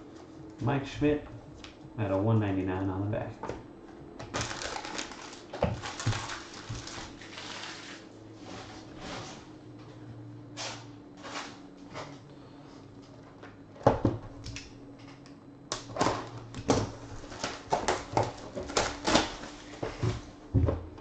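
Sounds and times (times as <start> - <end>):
cellophane wrap tearing and crinkling: 4.2 - 8.1, 15.7 - 19.6.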